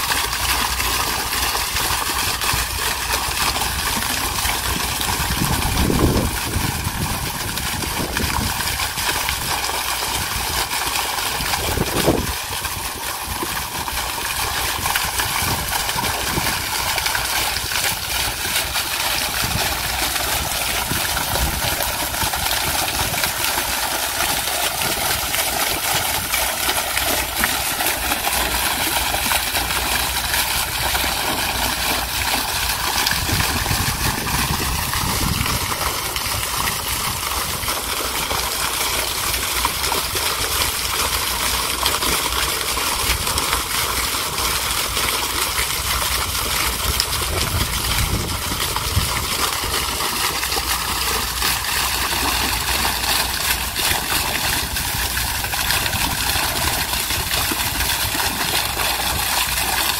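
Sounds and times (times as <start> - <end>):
fountain water splashing onto rocks: 0.0 - 59.9
wind rumble on microphone: 3.6 - 18.5, 19.2 - 23.4, 32.6 - 37.9, 46.4 - 50.1.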